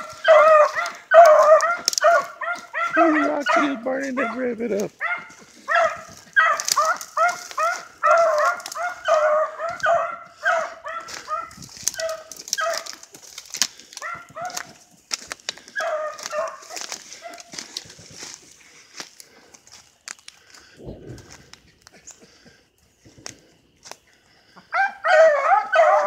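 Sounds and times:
dogs yelping bays: 0.0s - 13.1s, 14.0s - 14.8s, 15.6s - 17.6s, 24.6s - 26.0s
brush crackling underfoot: 0.0s - 26.0s.

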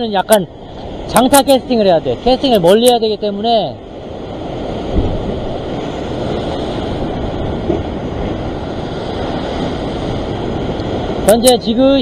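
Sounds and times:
ocean waves breaking on rocks: 0.0s - 12.0s
wind on microphone: 3.8s - 11.6s
low thump: 4.9s - 5.3s, 7.6s - 7.9s.

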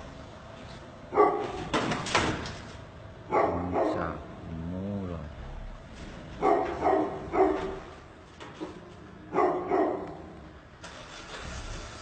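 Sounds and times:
dog barking: 1.1s - 1.6s, 3.3s - 4.2s, 6.4s - 7.9s, 9.3s - 10.4s.

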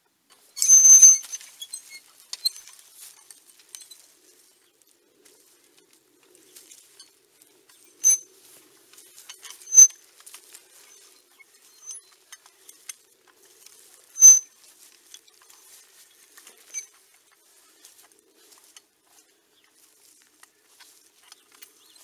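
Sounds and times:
metal tines scratching through soil: 0.3s - 4.6s, 6.5s - 18.8s
sharp metallic clinks: 0.6s - 4.0s, 10.8s - 13.0s.

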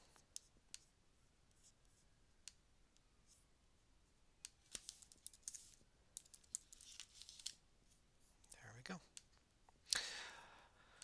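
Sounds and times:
computer keyboard typing: 6.2s - 7.0s.

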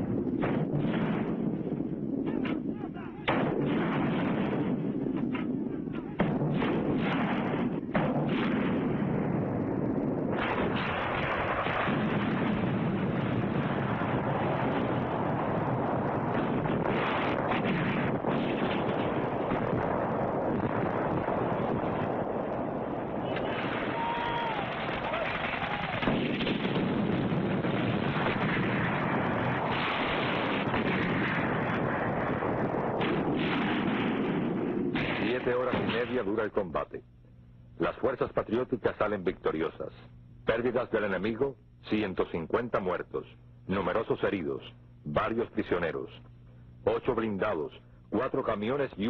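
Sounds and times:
artillery and gunfire: 0.0s - 36.6s
explosions: 0.0s - 36.7s.

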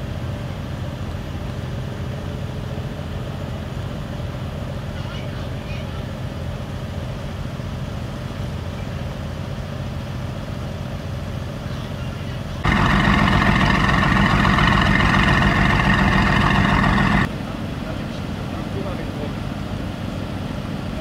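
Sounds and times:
car engine idling: 12.6s - 17.3s.

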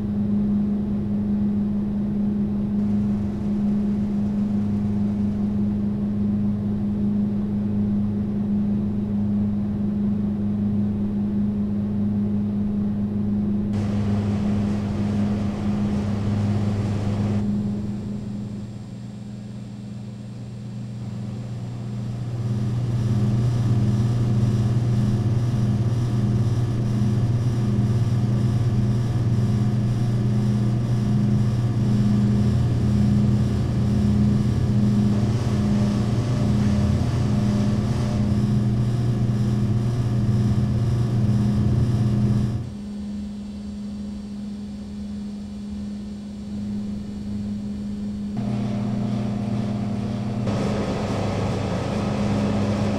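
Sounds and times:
vending machine electrical hum: 0.0s - 52.9s
pulsing throb: 13.8s - 18.0s, 33.2s - 39.8s, 48.4s - 52.9s.

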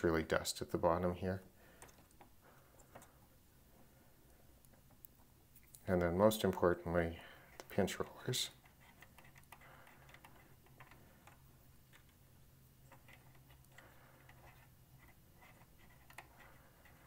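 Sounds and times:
faint low hum: 0.0s - 17.0s
cotton swab scrubbing rubber roller: 7.5s - 17.0s.

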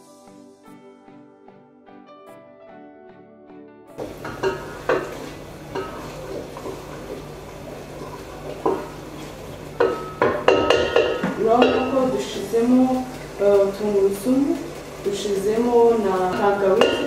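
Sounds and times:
food sizzling: 4.0s - 17.0s.

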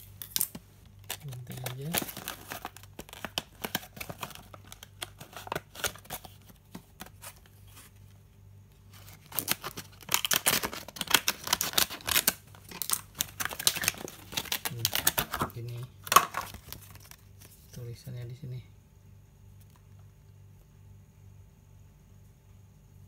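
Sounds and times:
plastic packaging crackling: 0.0s - 8.0s, 8.9s - 17.7s.

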